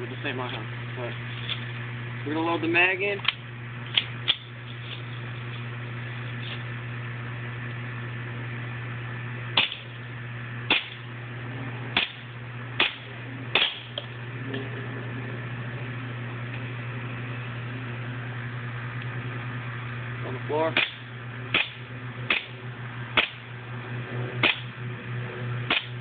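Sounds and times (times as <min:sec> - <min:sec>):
steady low hum: 0:00.0 - 0:26.0
airsoft pistol shots: 0:09.6 - 0:09.9, 0:10.7 - 0:11.0, 0:12.0 - 0:14.0, 0:20.7 - 0:22.6, 0:23.2 - 0:23.4, 0:24.4 - 0:24.7, 0:25.7 - 0:26.0.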